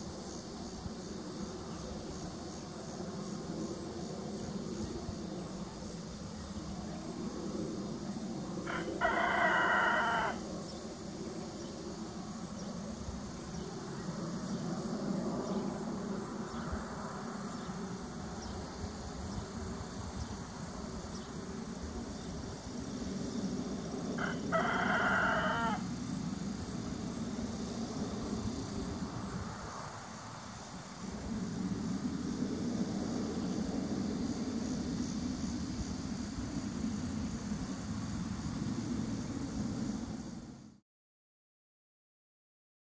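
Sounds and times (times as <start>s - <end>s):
steady low hum: 0.0s - 9.2s, 10.3s - 40.8s
rooster crowing: 8.6s - 10.4s, 24.2s - 25.9s.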